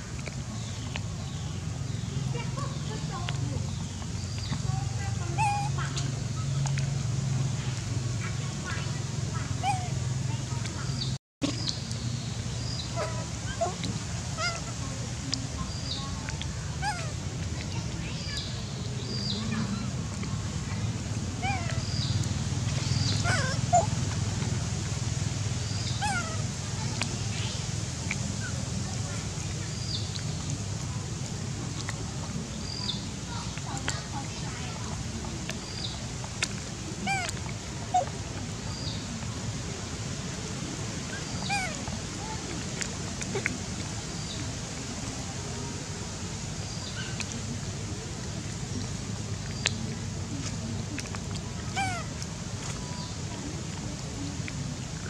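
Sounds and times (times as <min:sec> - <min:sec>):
steady low rumble: 0:00.0 - 0:55.0
young monkeys squeaking: 0:05.3 - 0:06.1, 0:09.6 - 0:09.9, 0:12.9 - 0:14.8, 0:21.4 - 0:22.1, 0:22.9 - 0:24.0, 0:25.8 - 0:26.4, 0:37.0 - 0:38.1, 0:41.2 - 0:41.8, 0:51.7 - 0:52.1
small animals chirping: 0:21.4 - 0:22.1, 0:22.9 - 0:24.0.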